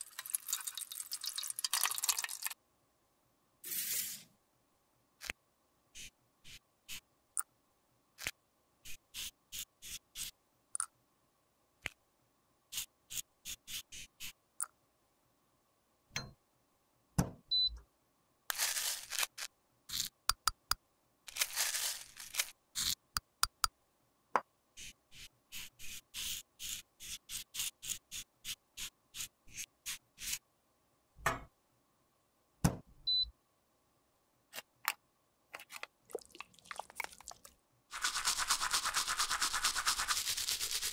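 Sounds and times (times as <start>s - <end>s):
metal spatula scraping powder: 3.6s - 4.3s.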